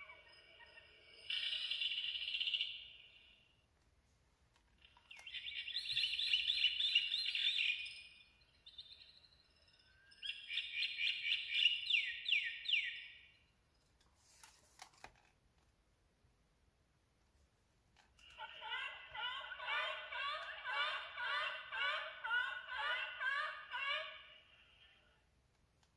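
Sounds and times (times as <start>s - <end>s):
recorded birdsong from toy speaker: 0.0s - 3.7s, 4.5s - 14.5s, 18.0s - 25.9s
page turning taps and rustles: 14.2s - 15.7s.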